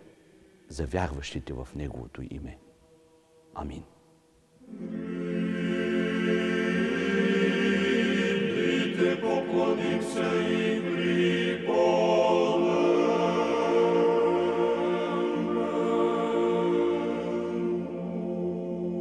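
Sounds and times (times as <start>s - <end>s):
choir singing chant: 4.6s - 19.0s.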